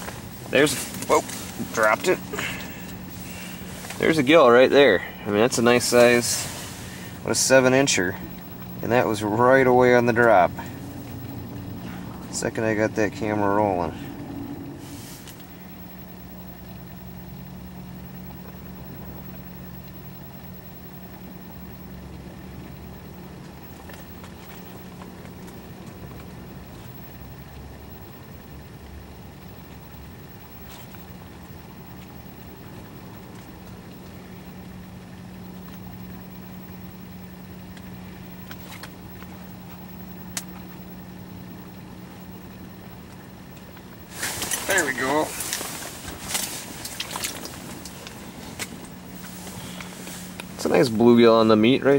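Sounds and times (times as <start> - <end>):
faint hiss: 0.0 - 8.3
low machine hum: 0.0 - 51.9.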